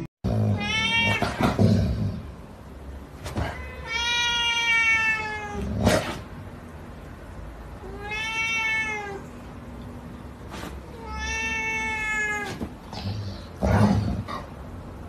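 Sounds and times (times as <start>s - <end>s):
cat meowing: 0.5s - 1.5s, 3.3s - 5.7s, 7.8s - 9.4s, 10.8s - 12.7s.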